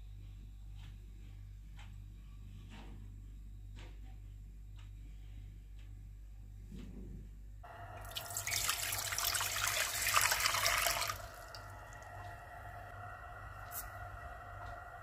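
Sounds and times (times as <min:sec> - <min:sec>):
water pouring into a saucepan: 0:08.0 - 0:12.1.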